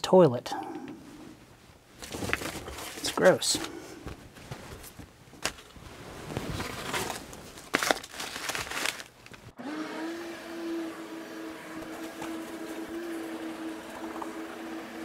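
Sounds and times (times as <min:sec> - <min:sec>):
rustling and scraping debris by hand: 0:02.0 - 0:09.5
vacuum cleaner humming: 0:09.6 - 0:15.0.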